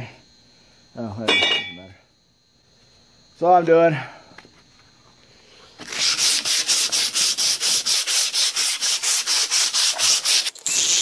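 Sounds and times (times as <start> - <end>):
sandpaper rubbing back and forth: 5.8 - 11.0.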